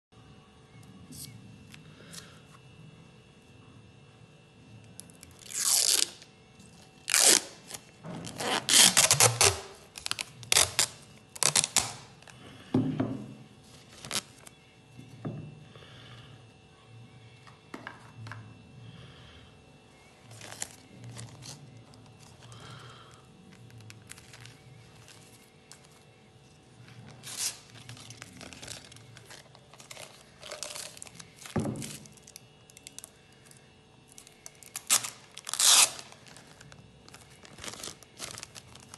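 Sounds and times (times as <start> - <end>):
plastic film crackling rips: 5.4 - 6.3, 7.0 - 12.3, 26.9 - 33.1, 34.1 - 38.9
plastic film crinkling: 8.4 - 12.1, 23.6 - 26.0, 26.9 - 33.1, 34.1 - 38.9.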